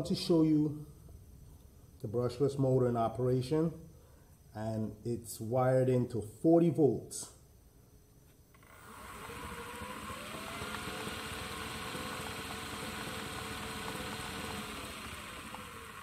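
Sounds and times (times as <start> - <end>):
electric motor whine: 8.5 - 16.0.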